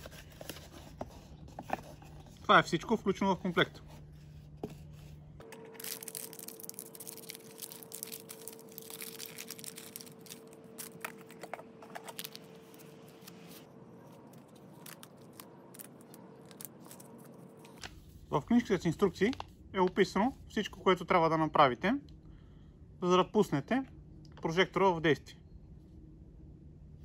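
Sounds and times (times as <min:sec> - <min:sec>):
paper wrapping tearing and crinkling: 0:05.5 - 0:18.0.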